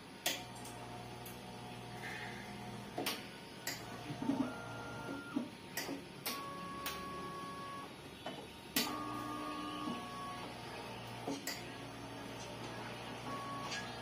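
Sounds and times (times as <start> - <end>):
motor whine: 8.7 - 14.0.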